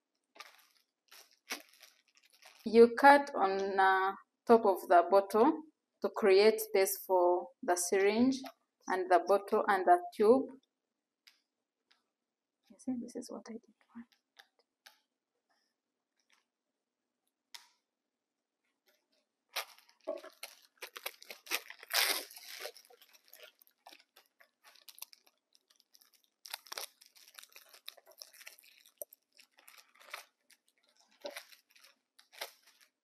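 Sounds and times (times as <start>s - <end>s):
plastic wrapping crinkling and tearing: 0.3s - 3.0s, 18.9s - 33.0s.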